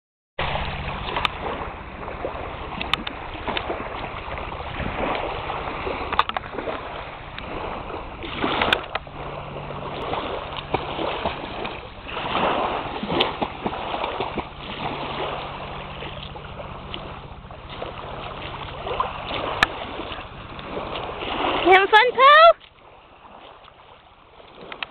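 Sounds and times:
small splashes: 0:00.4 - 0:24.9
small waves lapping on sand: 0:00.4 - 0:24.9
wind gusting on microphone: 0:00.6 - 0:16.0.

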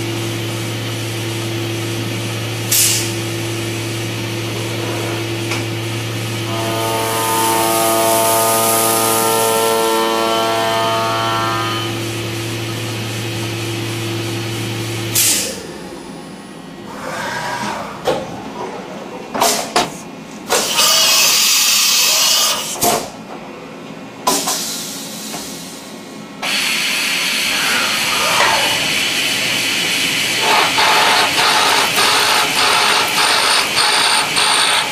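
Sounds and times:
milling machine hum: 0:00.0 - 0:18.6, 0:26.4 - 0:34.9.

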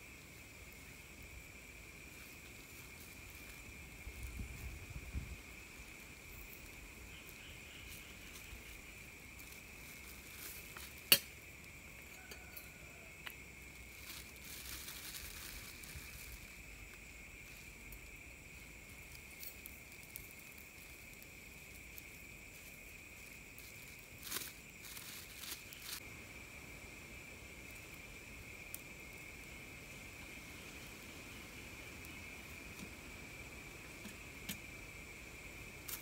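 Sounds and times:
campfire crackling: 0:00.0 - 0:36.0
insects droning: 0:00.0 - 0:36.0
plastic bag rustling: 0:13.9 - 0:16.6, 0:23.6 - 0:26.0.

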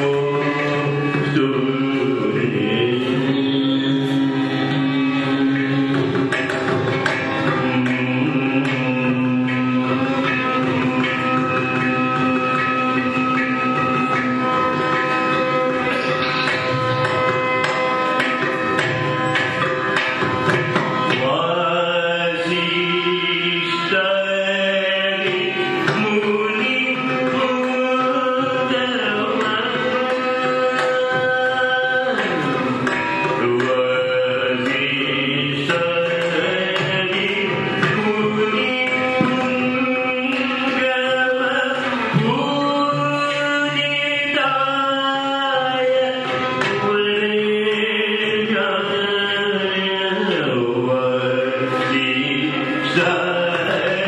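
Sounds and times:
hand drum strokes: 0:00.0 - 0:23.7.

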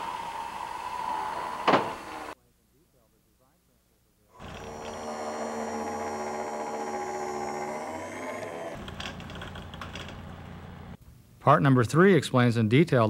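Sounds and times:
electric motor whine: 0:00.0 - 0:02.4, 0:04.4 - 0:10.1.

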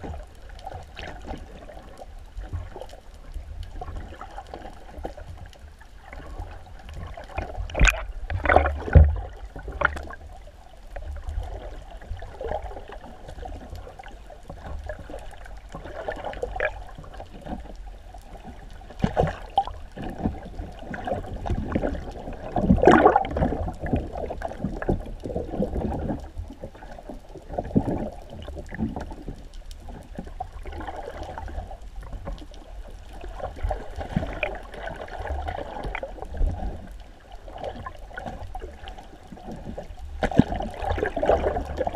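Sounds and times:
muffled underwater sloshing: 0:00.0 - 0:41.9
bubbly bursts and knocks: 0:07.4 - 0:09.9, 0:21.5 - 0:24.9.

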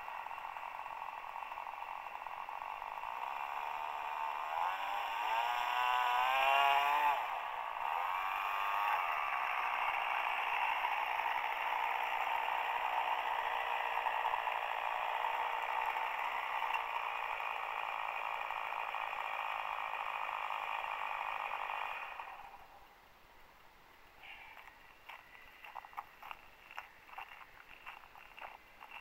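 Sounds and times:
model plane electric motor whirring: 0:00.0 - 0:22.7.

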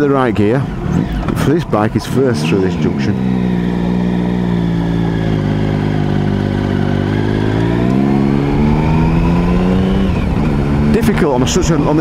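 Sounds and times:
motorcycle engine accelerating: 0:00.0 - 0:12.0.

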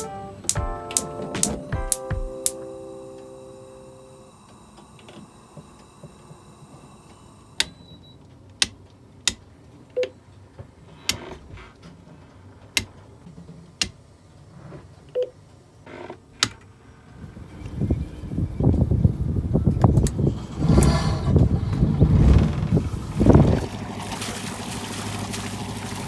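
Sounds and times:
toggle switches clicking: 0:00.0 - 0:02.6, 0:08.5 - 0:10.1
short beeps: 0:01.4 - 0:08.2.

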